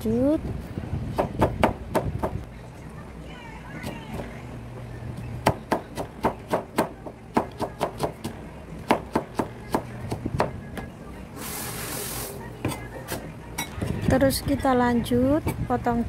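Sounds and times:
brief hiss: 0:11.4 - 0:12.4.

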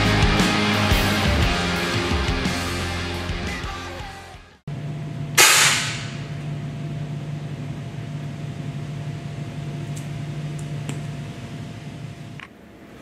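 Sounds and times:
steady low hum: 0:04.7 - 0:13.0
air cannon bang: 0:05.4 - 0:06.3.

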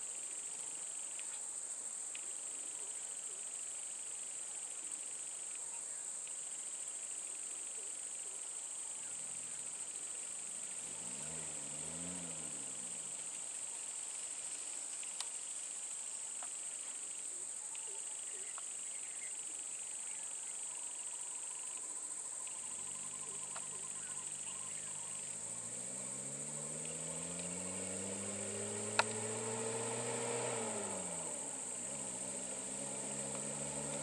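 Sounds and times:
insects droning: 0:00.0 - 0:34.0
truck engine revving: 0:10.4 - 0:13.5, 0:22.7 - 0:34.0.

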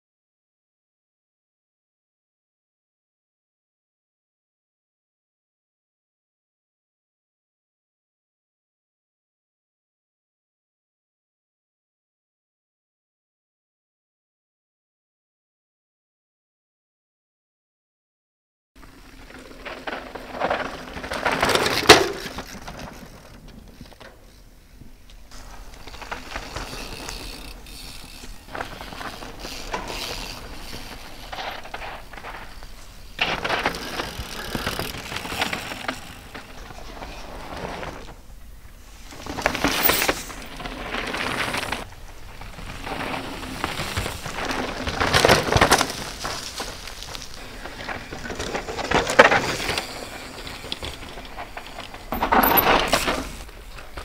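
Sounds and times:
mountain bikes passing on dirt: 0:18.8 - 0:54.0.

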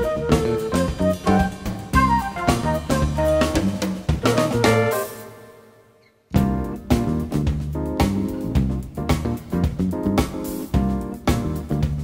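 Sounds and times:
bass: 0:00.0 - 0:05.4, 0:06.3 - 0:12.0
saxophone lines: 0:00.0 - 0:05.6
drum kit hits: 0:06.4 - 0:12.0.

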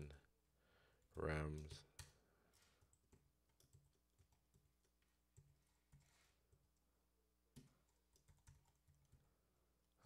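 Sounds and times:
keyboard typing: 0:02.8 - 0:06.8, 0:07.5 - 0:09.2.

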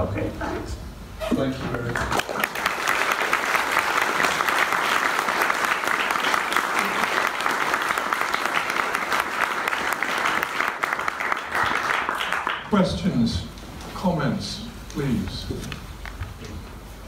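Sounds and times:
audience applauding: 0:01.9 - 0:12.7.

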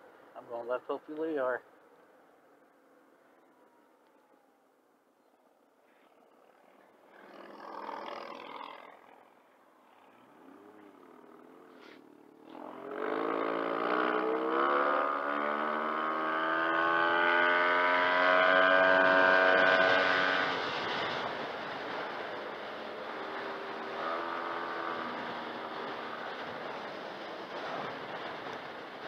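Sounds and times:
scooter engine revving: 0:07.2 - 0:09.2.

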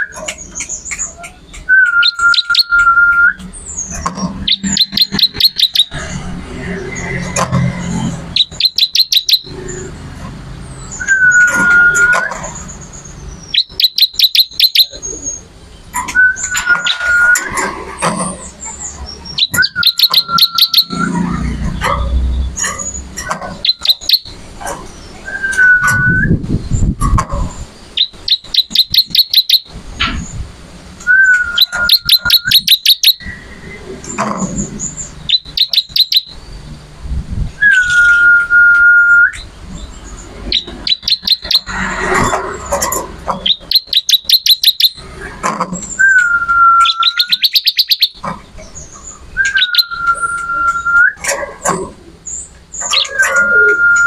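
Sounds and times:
bird singing high ticking notes: 0:00.0 - 0:26.9, 0:27.6 - 0:30.4, 0:31.0 - 0:36.9, 0:37.6 - 0:51.2, 0:52.2 - 0:54.0
bird whistled notes: 0:01.1 - 0:06.2, 0:08.3 - 0:09.6, 0:10.9 - 0:12.7, 0:13.4 - 0:15.4, 0:16.0 - 0:17.6, 0:19.3 - 0:21.2, 0:23.6 - 0:24.3, 0:25.2 - 0:26.4, 0:28.0 - 0:29.7, 0:31.0 - 0:33.8, 0:35.3 - 0:36.4, 0:37.6 - 0:39.4, 0:40.5 - 0:42.1, 0:43.4 - 0:45.0, 0:45.9 - 0:48.2, 0:49.4 - 0:51.2, 0:52.8 - 0:54.0.

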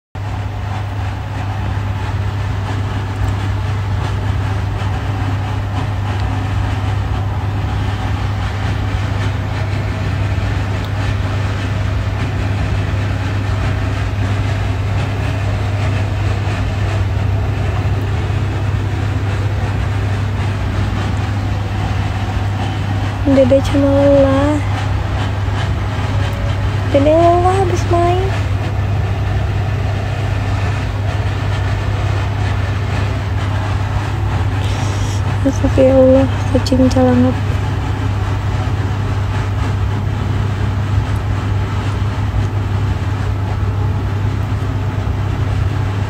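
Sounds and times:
steady low hum: 0:00.2 - 0:46.0
even rushing noise: 0:04.9 - 0:40.4.

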